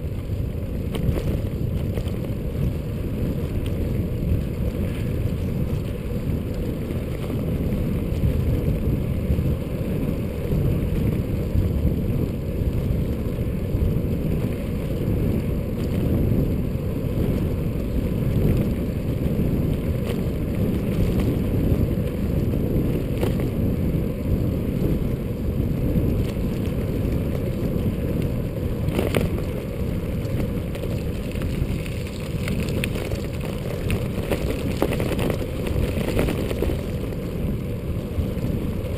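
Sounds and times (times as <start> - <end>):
bicycle tyres on asphalt: 0.0 - 38.9
wind rushing on microphone: 0.0 - 38.9.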